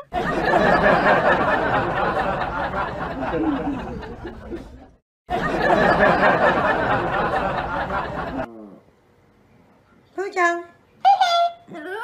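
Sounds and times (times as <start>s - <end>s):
group laughing and chattering: 0.0s - 8.5s.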